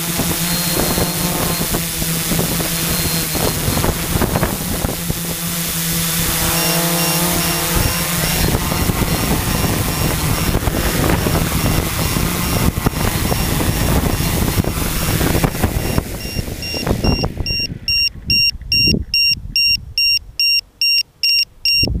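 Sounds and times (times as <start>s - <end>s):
drone propellers whirring: 0.0s - 20.6s
short high electronic beeps: 6.5s - 10.6s, 11.6s - 14.4s, 15.8s - 21.9s.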